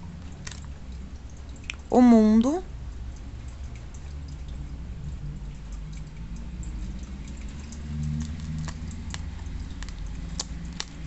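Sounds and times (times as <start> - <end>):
low steady hum: 0.0 - 11.0
cards clicking and tapping: 8.3 - 11.0.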